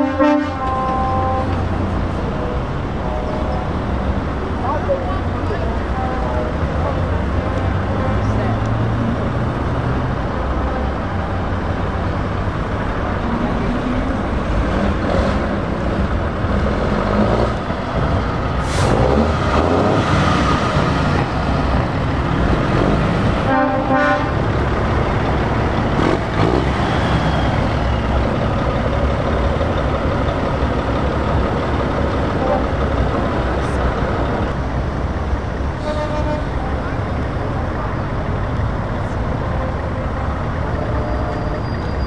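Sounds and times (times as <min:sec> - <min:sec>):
truck horn toot: 0:00.0 - 0:01.6, 0:23.4 - 0:24.5, 0:32.4 - 0:32.7, 0:35.8 - 0:36.7
truck diesel engine pulling away: 0:01.5 - 0:23.5, 0:24.2 - 0:42.0.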